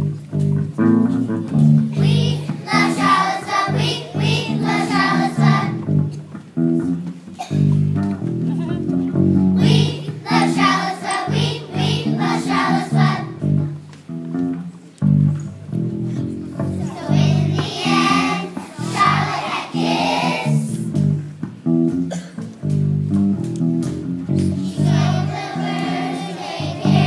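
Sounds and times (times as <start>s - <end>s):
guitar-like accompaniment: 0.0s - 27.0s
children's choir singing: 2.0s - 5.9s, 9.6s - 13.4s, 16.6s - 21.0s, 24.6s - 27.0s.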